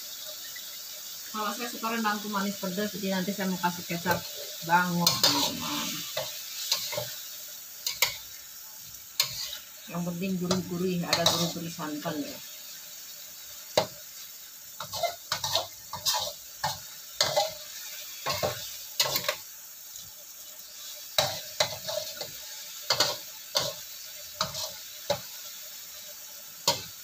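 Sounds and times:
gravy sizzling: 0:00.0 - 0:27.0
metal spatula scraping a wok: 0:04.0 - 0:08.3, 0:09.2 - 0:09.8, 0:10.4 - 0:12.1, 0:14.8 - 0:19.5, 0:20.7 - 0:25.3, 0:26.6 - 0:27.0.

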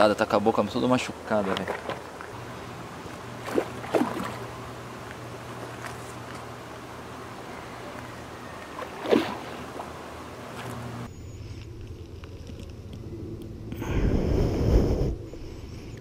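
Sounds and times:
low hum: 0:02.0 - 0:16.0
fish splashing at surface: 0:03.4 - 0:04.5.

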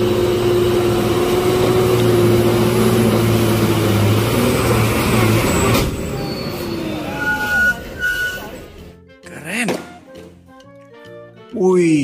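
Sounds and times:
diesel truck engine humming: 0:00.0 - 0:09.2.

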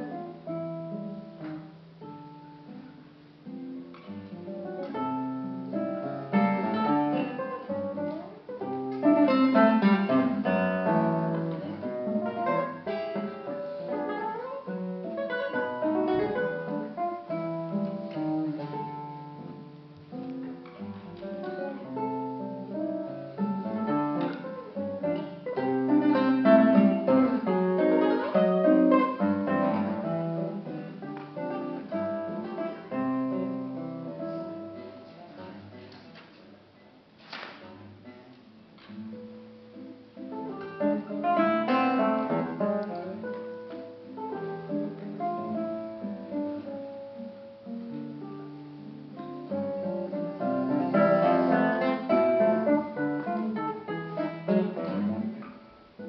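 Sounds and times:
solo classical guitar waltz: 0:00.0 - 0:56.0.

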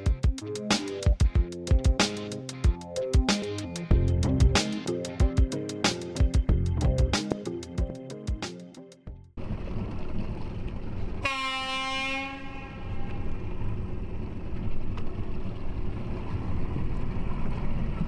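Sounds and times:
steady low rumble: 0:03.9 - 0:05.6, 0:06.2 - 0:07.2
long horn blast: 0:11.2 - 0:13.2.

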